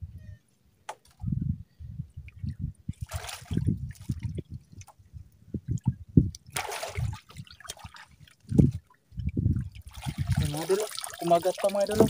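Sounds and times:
water splashing and dripping: 0:02.3 - 0:05.0, 0:05.7 - 0:12.0.

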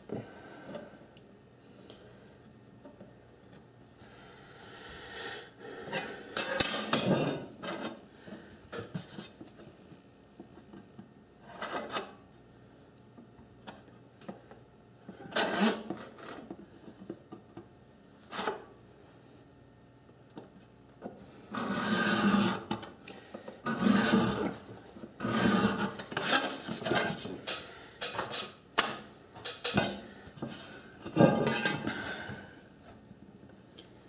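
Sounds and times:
metal scriber scratching a pan: 0:15.2 - 0:15.9.

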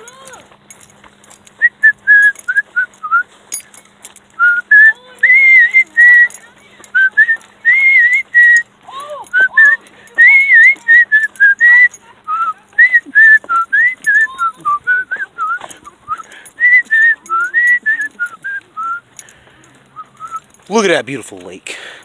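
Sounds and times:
person whistling a tune: 0:01.6 - 0:03.3, 0:04.4 - 0:08.7, 0:09.3 - 0:19.1, 0:20.0 - 0:20.5.

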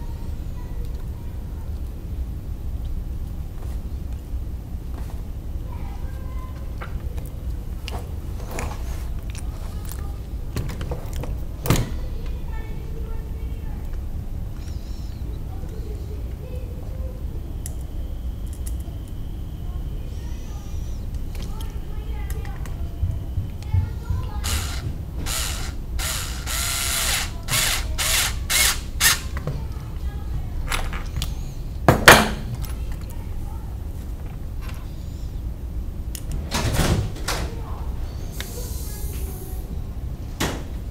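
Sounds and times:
steady low hum: 0:00.0 - 0:40.9
cordless drill bursts on plastic: 0:24.4 - 0:29.2.

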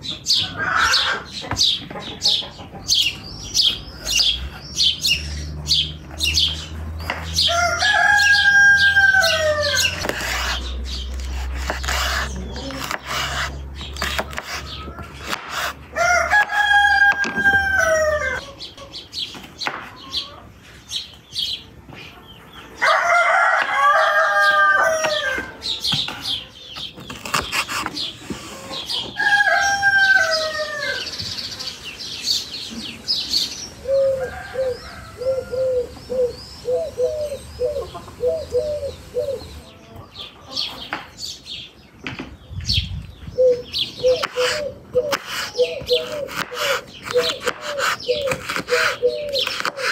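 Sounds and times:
hen clucking: 0:00.1 - 0:04.9, 0:33.8 - 0:41.0, 0:43.4 - 0:49.9
rooster crowing: 0:07.4 - 0:10.0, 0:15.9 - 0:18.4, 0:22.8 - 0:25.6, 0:29.1 - 0:31.2, 0:33.8 - 0:36.0
knife cutting on wooden board: 0:09.7 - 0:15.8, 0:27.0 - 0:28.5, 0:44.2 - 0:49.9.

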